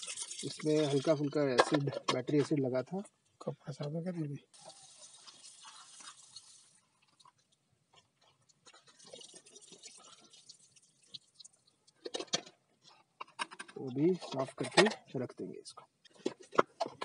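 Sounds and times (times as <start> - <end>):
water splashing and trickling: 0.0 - 1.4, 4.5 - 7.3, 8.7 - 11.9.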